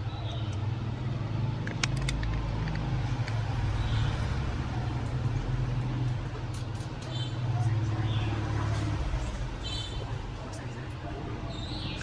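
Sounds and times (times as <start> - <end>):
plastic clicks: 1.6 - 3.4.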